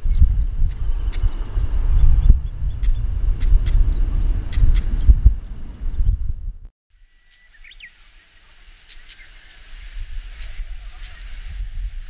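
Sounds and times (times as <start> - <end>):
low background rumble: 0.3 - 6.7
bird clicking notes: 2.8 - 5.4
bird whistled notes: 7.0 - 11.4.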